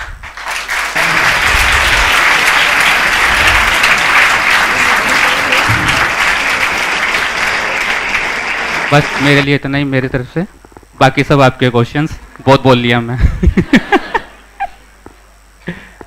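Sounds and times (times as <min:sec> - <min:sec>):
audience clapping: 0:00.0 - 0:09.8.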